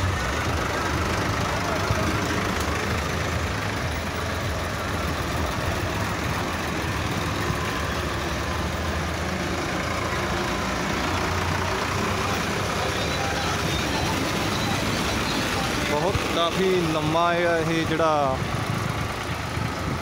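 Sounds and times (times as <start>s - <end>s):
tractor engines driving past: 0.0s - 20.0s.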